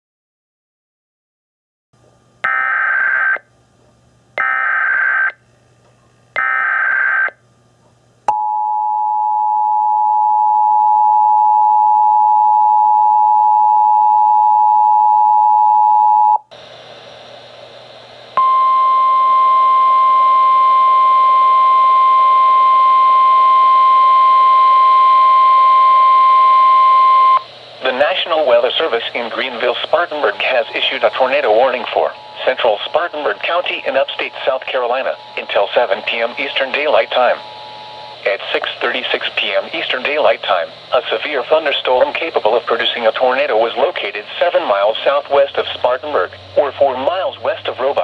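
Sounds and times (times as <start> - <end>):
screeching digital data bursts: 2.5 - 3.4, 4.4 - 5.4, 6.4 - 7.3, 23.4 - 43.7
single-pitch alarm tone: 8.3 - 16.4, 18.4 - 27.5, 30.5 - 38.3
static hiss: 16.5 - 18.4, 21.9 - 48.0.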